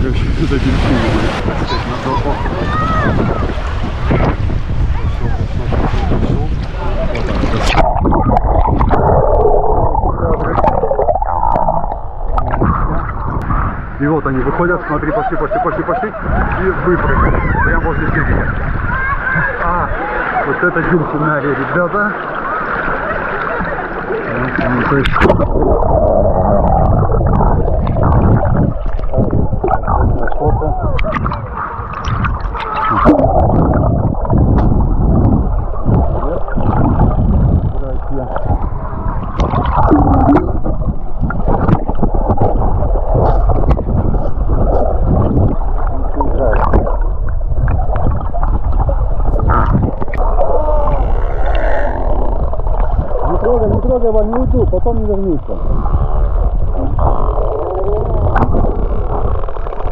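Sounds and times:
low underwater rumbling: 0.0 - 59.9
muffled underwater sloshing: 0.0 - 59.9
camera plunging into water: 5.7 - 13.6, 24.3 - 54.5, 58.2 - 59.9.

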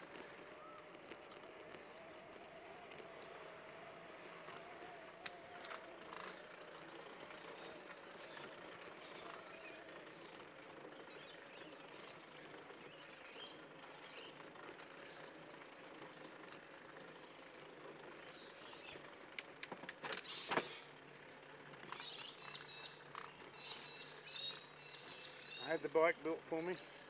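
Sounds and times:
faint chain whine: 0.0 - 27.0
trike tyre and drivetrain noise: 0.0 - 27.0
birds chirping: 5.5 - 15.4, 17.1 - 19.4, 21.8 - 27.0.

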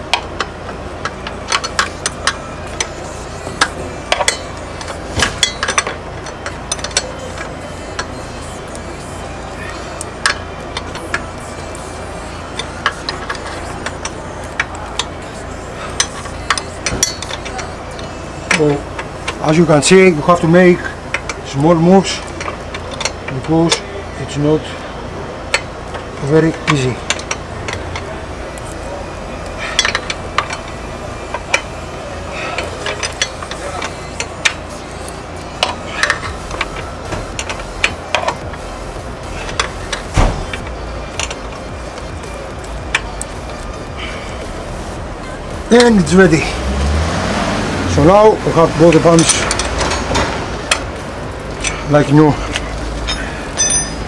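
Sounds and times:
low steady hum: 0.0 - 54.0
metal spanner clicking: 0.1 - 8.2, 10.0 - 11.7, 12.5 - 15.2, 15.9 - 21.4, 22.0 - 23.8, 25.5 - 28.9, 29.5 - 31.7, 32.6 - 44.5, 48.8 - 54.0.

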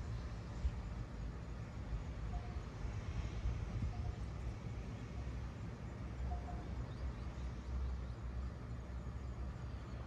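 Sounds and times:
steady hiss: 0.0 - 10.0.

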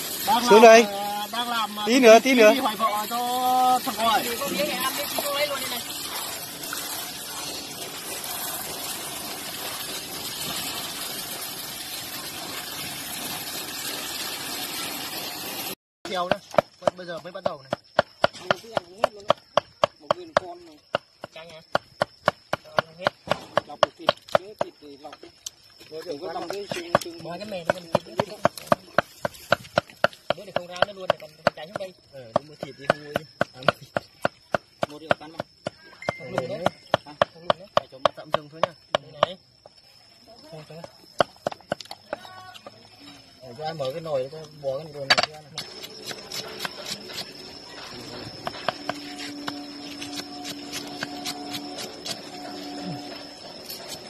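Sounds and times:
water running: 0.0 - 15.8.

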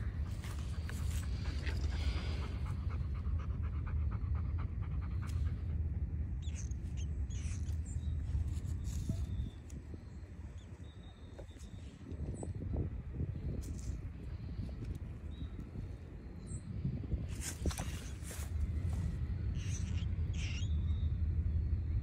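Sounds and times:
steady low rumble: 0.0 - 22.0
dog panting: 0.6 - 5.9.

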